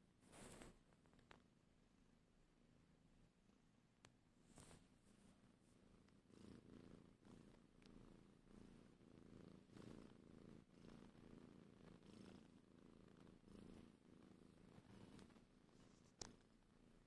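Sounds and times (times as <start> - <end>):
cat purring: 4.4 - 17.0.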